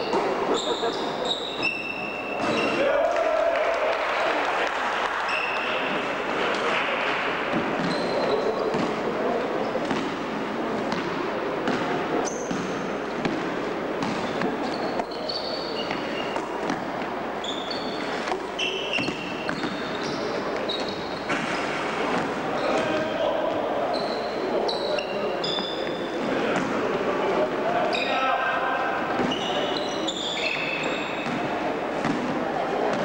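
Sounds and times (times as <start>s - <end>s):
sneakers squeaking on floor: 0.0s - 2.8s, 5.2s - 26.9s, 27.8s - 33.0s
players' voices: 0.0s - 33.0s
basketball bouncing: 7.5s - 9.0s, 10.9s - 14.8s, 18.9s - 20.2s.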